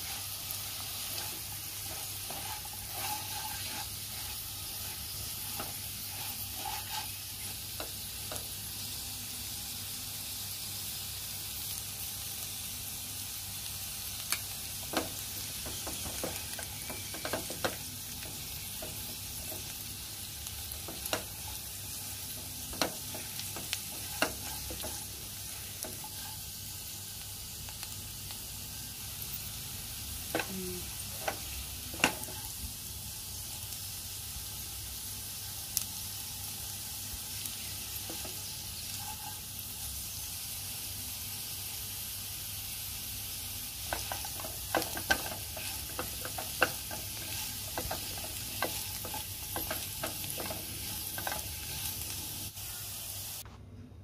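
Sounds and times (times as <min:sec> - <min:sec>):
spatula knocking and scraping pan: 0:00.0 - 0:08.6, 0:14.8 - 0:19.8, 0:20.7 - 0:26.4, 0:30.3 - 0:32.5, 0:37.9 - 0:39.4, 0:43.8 - 0:52.2
vegetables sizzling in frying pan: 0:00.0 - 0:53.4.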